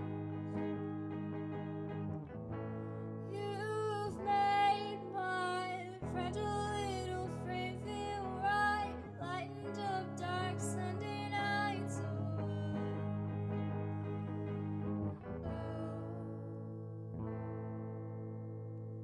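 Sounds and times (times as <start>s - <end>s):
instrumental chords: 0.0s - 19.0s
person singing: 3.3s - 14.2s, 15.3s - 16.6s.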